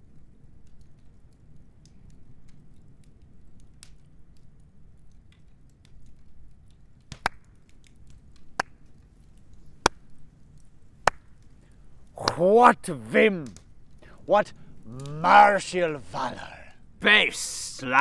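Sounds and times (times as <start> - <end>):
campfire crackling: 0.0 - 18.0
sharp wood snaps: 0.6 - 12.4.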